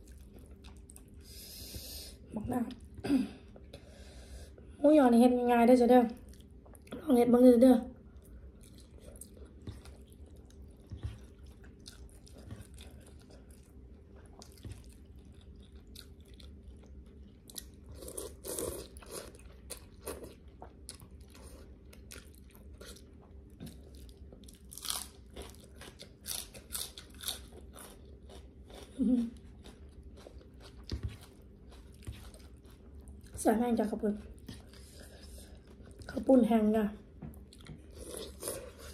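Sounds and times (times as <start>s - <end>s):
crunchy chewing: 8.2s - 33.4s.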